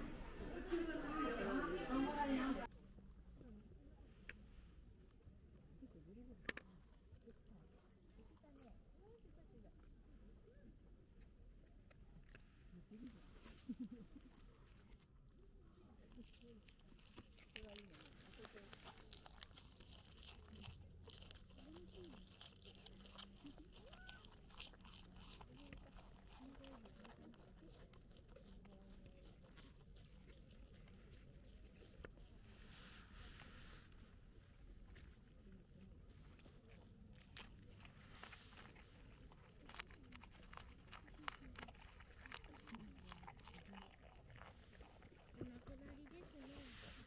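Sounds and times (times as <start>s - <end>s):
animal chewing crisp leaf: 15.7s - 47.0s.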